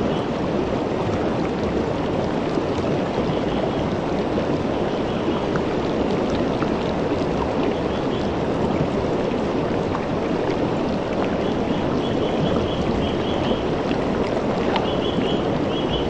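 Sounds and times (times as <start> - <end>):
river rushing over rocks: 0.0 - 16.0
bird chirping: 14.8 - 16.0.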